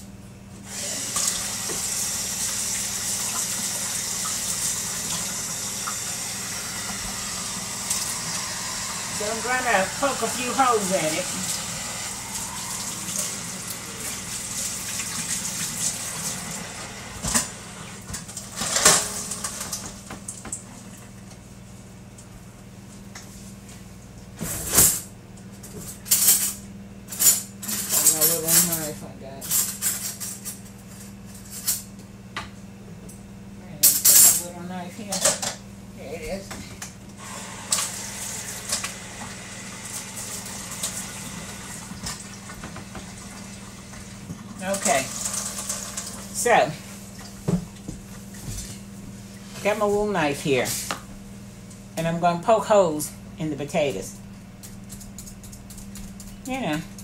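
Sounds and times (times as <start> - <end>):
steady low hum: 0.0 - 40.4.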